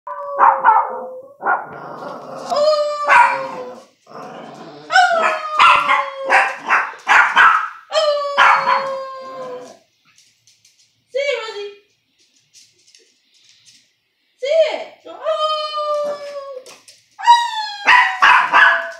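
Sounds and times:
small dog barking and yipping: 0:00.4 - 0:01.7, 0:03.0 - 0:03.8, 0:04.9 - 0:09.7, 0:17.2 - 0:18.9
woman howling like a dog: 0:04.9 - 0:06.5, 0:07.9 - 0:09.8.

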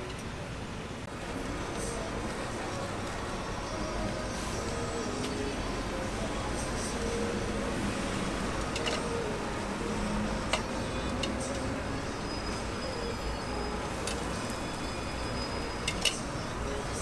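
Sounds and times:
street traffic: 0:00.0 - 0:17.0.

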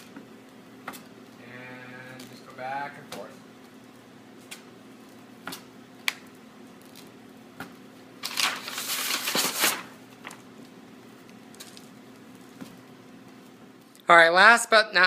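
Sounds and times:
vinyl film rustling: 0:08.2 - 0:13.9.

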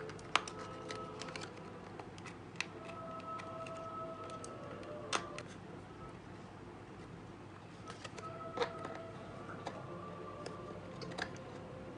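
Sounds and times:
paper clicks and crinkles: 0:00.0 - 0:05.0.

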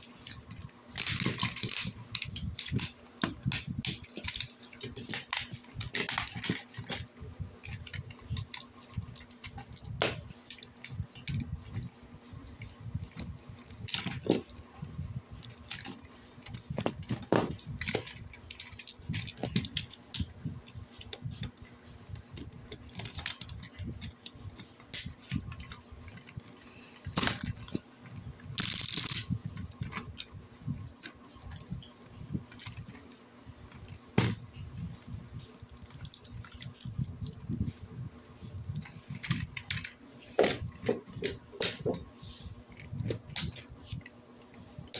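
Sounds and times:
plastic toy parts clicking: 0:00.2 - 0:11.9, 0:13.0 - 0:14.7, 0:15.4 - 0:21.6, 0:22.2 - 0:27.8, 0:28.4 - 0:34.6, 0:35.4 - 0:37.8, 0:42.7 - 0:44.2.

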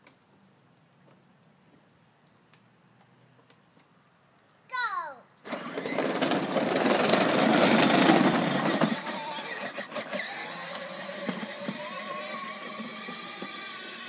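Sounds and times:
electric toy car motors running: 0:05.4 - 0:14.0
plastic wheels rumbling: 0:05.4 - 0:14.0.

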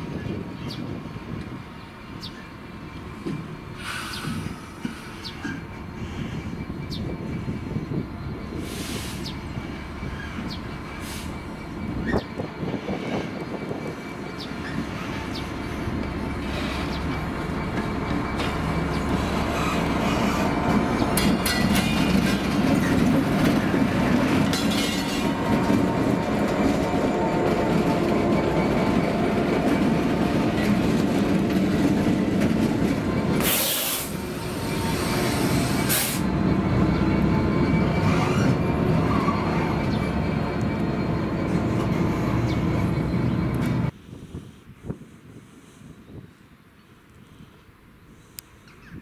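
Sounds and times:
diesel locomotive engine: 0:00.0 - 0:49.0
wheels rolling on rails: 0:36.7 - 0:44.0.

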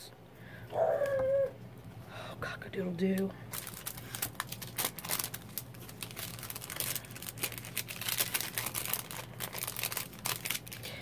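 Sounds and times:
plastic and paper crinkling: 0:03.1 - 0:11.0.

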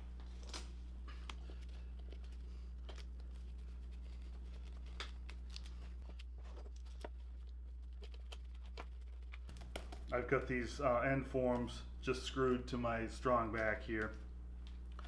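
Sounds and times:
plastic wrap crinkling: 0:00.0 - 0:10.5
low electrical hum: 0:00.0 - 0:15.0.

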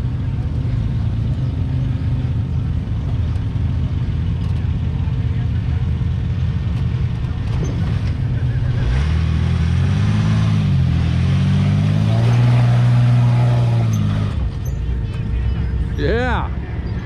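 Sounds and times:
engine revving under load: 0:07.6 - 0:14.6.

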